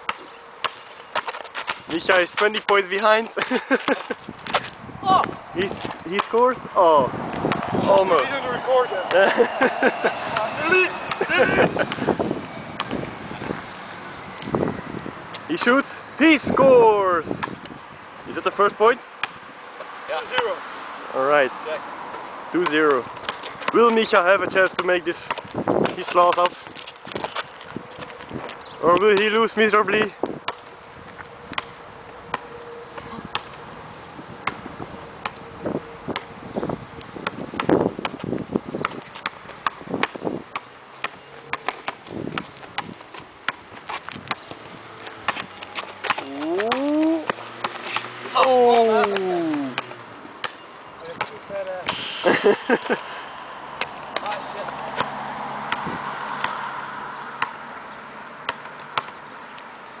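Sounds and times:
basketball bouncing on asphalt: 0:00.0 - 0:08.0, 0:11.9 - 0:15.8, 0:17.3 - 0:21.0, 0:22.0 - 0:33.7, 0:34.3 - 0:52.0, 0:53.6 - 1:00.0
background hiss: 0:51.5 - 0:53.8.

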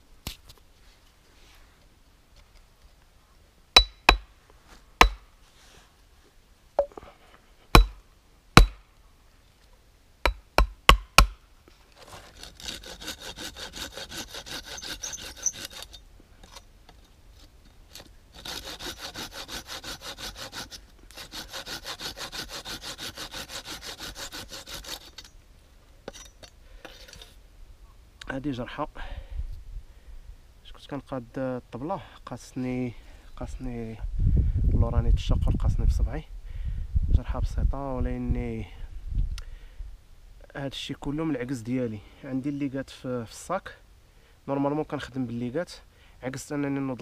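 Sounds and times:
sharp wooden knocks: 0:05.0 - 0:05.2, 0:07.8 - 0:08.0, 0:08.6 - 0:08.8, 0:10.3 - 0:11.4
pruning saw cutting wood: 0:12.0 - 0:16.0, 0:17.9 - 0:25.4.

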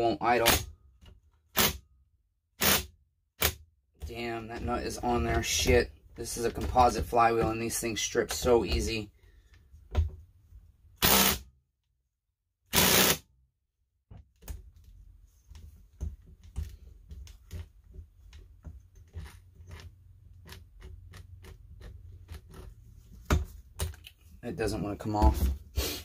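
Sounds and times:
impact wrench hammering: 0:12.7 - 0:13.2
tools clicking and knocking: 0:15.5 - 0:24.3.

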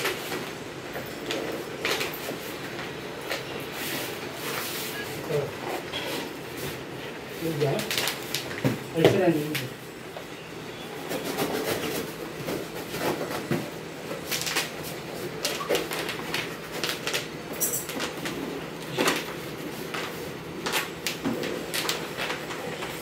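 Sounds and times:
bubble wrap crackling: 0:06.7 - 0:09.6, 0:11.3 - 0:23.0
cardboard rustling and scraping: 0:11.0 - 0:17.4.

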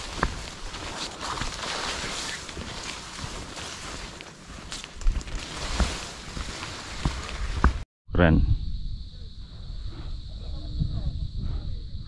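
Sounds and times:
footsteps on dirt trail: 0:00.0 - 0:07.8
wind rumbling on microphone: 0:00.0 - 0:12.0.

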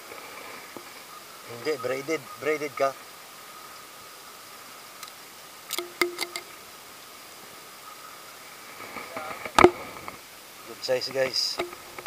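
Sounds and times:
sharp clicks and knocks: 0:05.7 - 0:06.5, 0:11.5 - 0:12.0.

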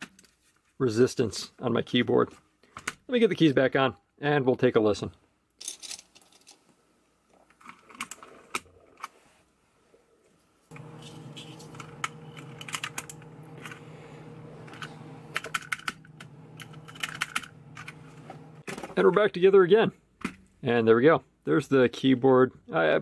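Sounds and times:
steady low hum: 0:10.7 - 0:18.6
keycaps clicking and snapping: 0:10.7 - 0:18.7.

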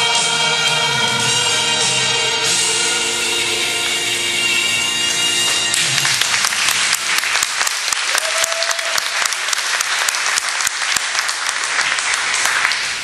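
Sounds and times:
crowd clapping: 0:05.1 - 0:13.0
person cheering: 0:08.1 - 0:09.3.

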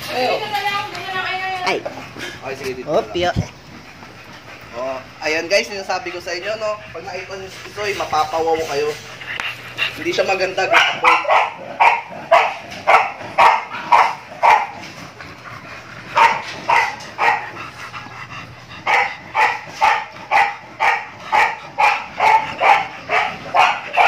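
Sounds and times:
dog barking: 0:10.6 - 0:14.9, 0:16.2 - 0:17.6, 0:18.8 - 0:24.0.

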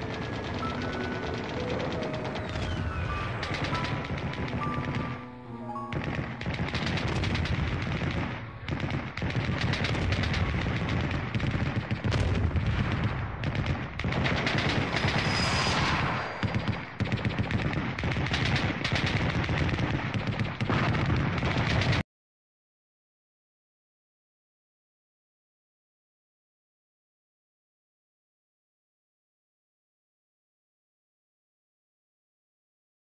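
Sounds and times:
background music: 0:00.0 - 0:11.0
machine-gun fire: 0:00.0 - 0:22.0.

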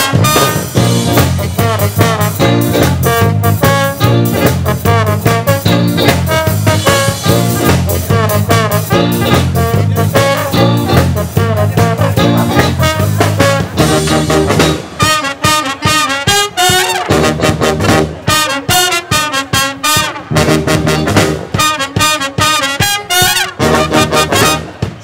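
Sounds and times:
saxophone: 0:00.0 - 0:24.8
steady drum beat: 0:00.0 - 0:25.0
trombone: 0:00.0 - 0:25.0
trumpets: 0:00.0 - 0:25.0
tuba: 0:00.0 - 0:25.0.

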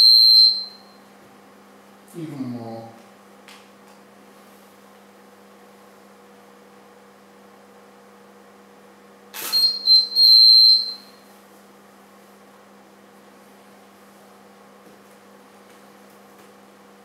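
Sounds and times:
high beeps from flash heads: 0:00.0 - 0:01.0, 0:09.4 - 0:11.2
steady low hum: 0:00.0 - 0:17.0.

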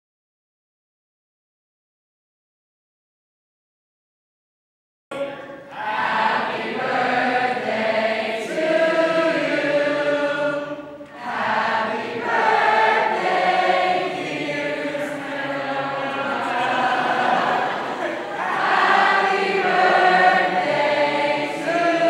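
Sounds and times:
choir singing: 0:05.6 - 0:22.0.

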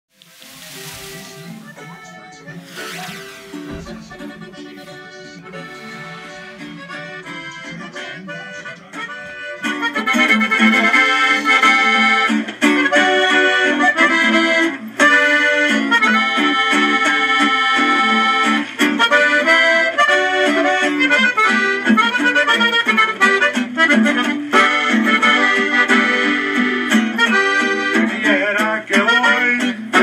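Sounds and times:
band playing: 0:00.2 - 0:26.6
accordion: 0:00.4 - 0:30.0.

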